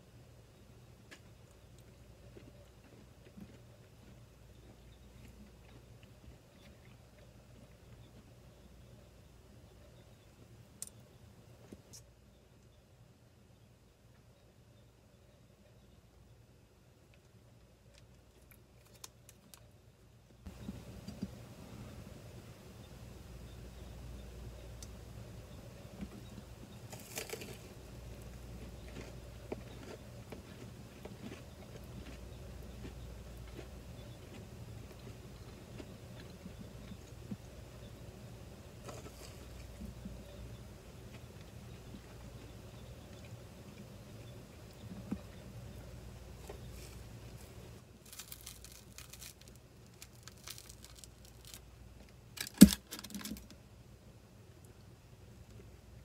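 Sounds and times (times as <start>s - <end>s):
crunchy bite: 26.9s - 35.1s, 48.1s - 51.6s, 52.4s - 53.4s
bread tearing: 48.0s - 51.6s.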